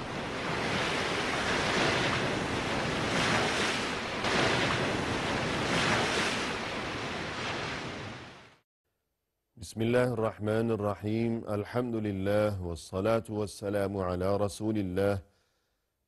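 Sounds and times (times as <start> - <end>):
rushing surf-like noise: 0.0 - 8.6.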